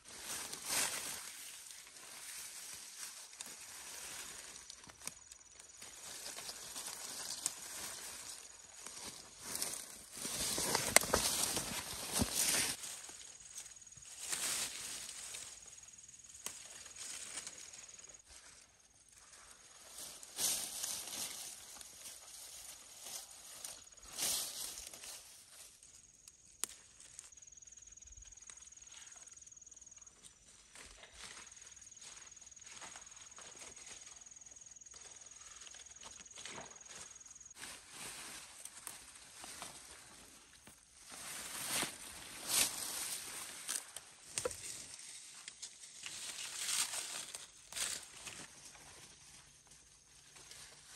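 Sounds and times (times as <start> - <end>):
leaves and grass rustling: 0.0 - 50.9
hands scraping in soil: 0.2 - 12.9.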